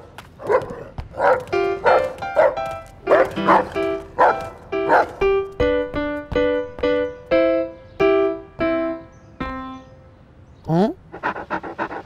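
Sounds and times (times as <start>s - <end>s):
dog barking: 0.4s - 5.2s
upright piano chords: 1.0s - 10.6s.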